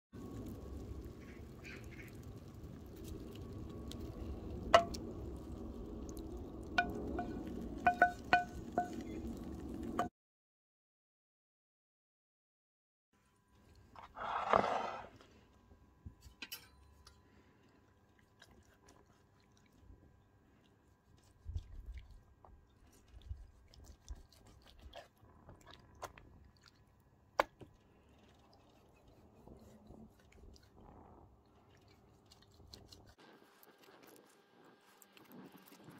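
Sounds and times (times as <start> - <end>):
spatula knocking on pan: 6.8 - 8.9
beans scraped from pan: 14.0 - 15.2.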